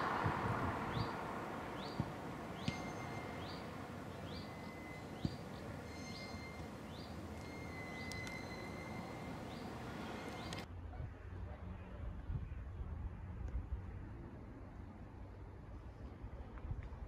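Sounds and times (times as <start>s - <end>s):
faint traffic noise: 0.0s - 17.0s
small bird calling: 1.8s - 10.6s.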